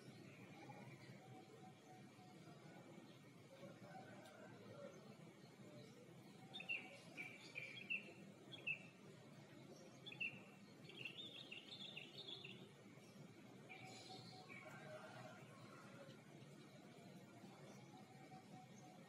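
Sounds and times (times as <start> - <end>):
small birds chirping: 9.6 - 14.6.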